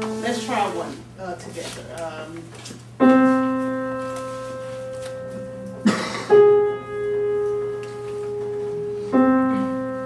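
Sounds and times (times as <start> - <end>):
grand piano notes: 3.0 - 10.0.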